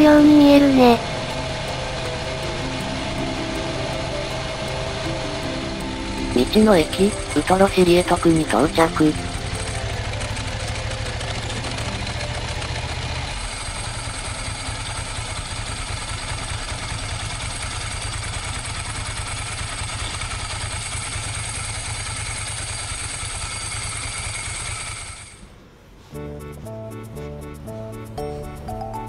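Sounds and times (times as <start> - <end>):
music: 0.0 - 13.3, 26.1 - 29.0
motorcycle engine pulsing: 0.0 - 25.4.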